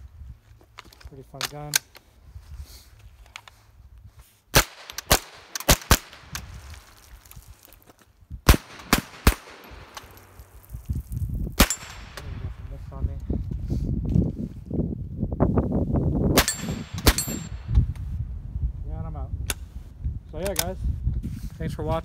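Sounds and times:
rifle gunshots: 4.5 - 6.3, 8.5 - 10.5, 11.6 - 12.6, 16.4 - 17.4.

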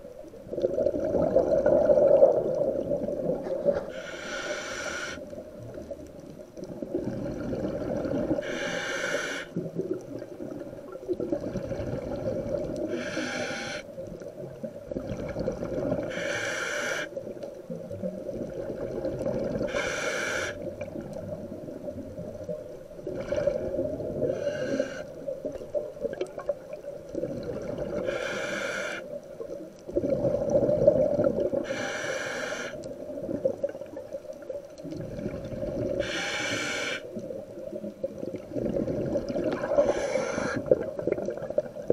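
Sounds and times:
regulator hiss on inhale: 3.8 - 5.4, 8.4 - 9.6, 12.8 - 14.0, 16.0 - 17.2, 19.6 - 20.7, 24.2 - 25.3, 27.9 - 29.2, 31.6 - 33.0, 36.0 - 37.2, 39.6 - 40.8.

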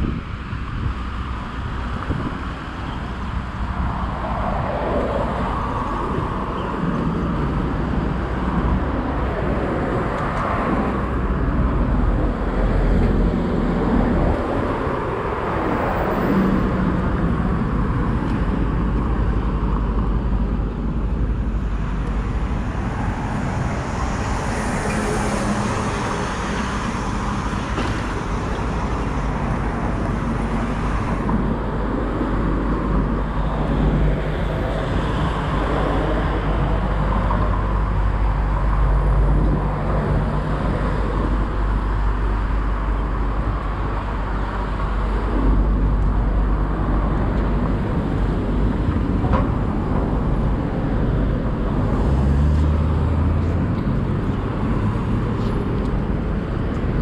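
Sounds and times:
low traffic rumble: 0.0 - 57.0
vehicles passing: 0.0 - 57.0
passing vehicle hiss: 21.2 - 57.0.

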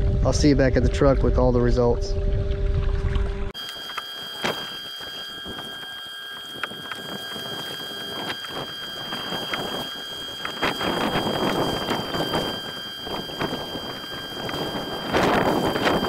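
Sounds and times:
wind: 0.0 - 16.0
electric motor whine: 3.1 - 16.0.

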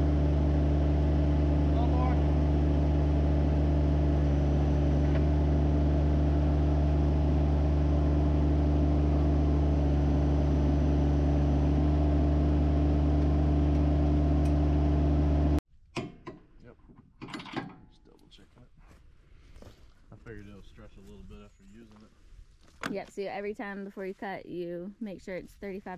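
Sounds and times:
gasoline engine running steadily: 0.0 - 15.6.

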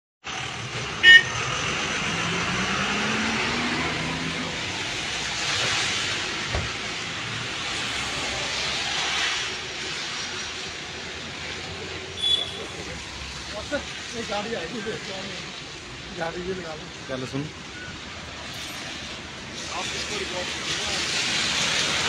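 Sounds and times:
passing car and bus engines: 0.2 - 22.0
tyres hissing on wet road: 0.3 - 22.0
loud high beep: 1.0 - 1.4, 12.2 - 12.7.

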